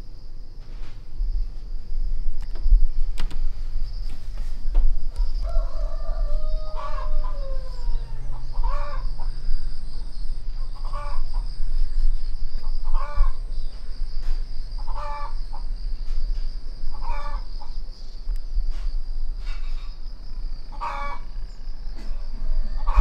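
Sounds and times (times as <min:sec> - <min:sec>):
chicken clucking: 0:06.5 - 0:09.2, 0:10.7 - 0:11.4, 0:12.8 - 0:13.4, 0:17.0 - 0:17.7, 0:20.7 - 0:21.2.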